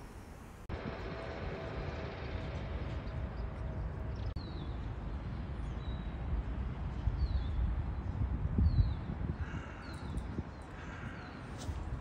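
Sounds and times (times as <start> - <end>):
low rumbling noise: 0.0 - 5.5.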